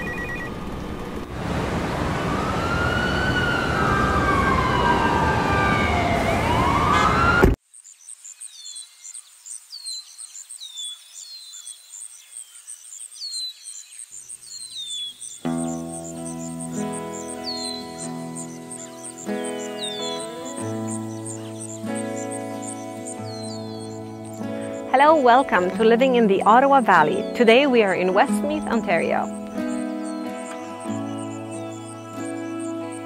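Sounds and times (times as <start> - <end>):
traffic noise: 0.6 - 7.6
siren wailing: 2.1 - 7.6
bird chirping: 7.8 - 33.0
guitar music: 15.4 - 33.0.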